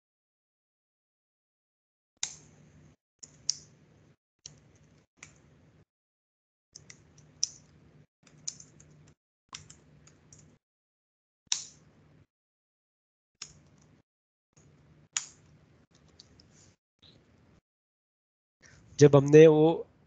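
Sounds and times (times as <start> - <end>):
keyboard typing clicks: 8.3 - 10.6.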